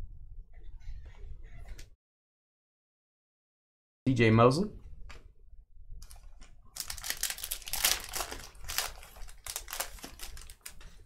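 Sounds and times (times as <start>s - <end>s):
foil wrapper tearing and crinkling: 6.0s - 11.0s.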